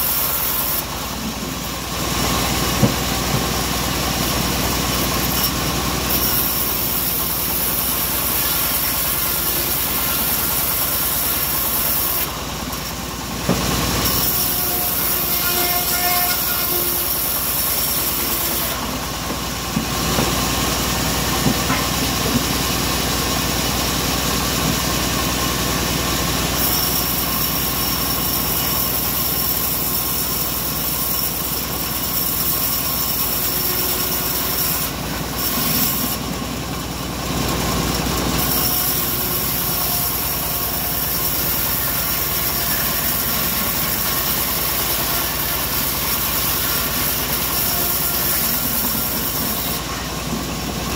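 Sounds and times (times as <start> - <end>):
band saw blade cutting wood: 0.0 - 22.7, 26.5 - 36.4, 37.5 - 50.9
timber knocking: 19.2 - 20.5, 21.3 - 22.6.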